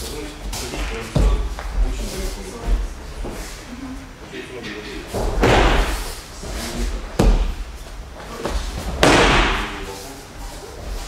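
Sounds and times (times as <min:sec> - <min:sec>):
bodies thudding on padded mat: 0:05.2 - 0:06.2, 0:07.0 - 0:09.7.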